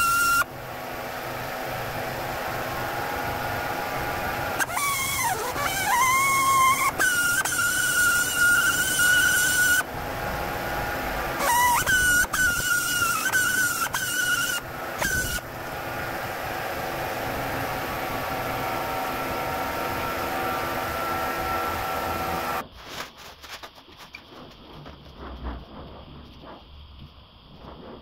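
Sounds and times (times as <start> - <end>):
air blow gun hissing: 11.4 - 15.4.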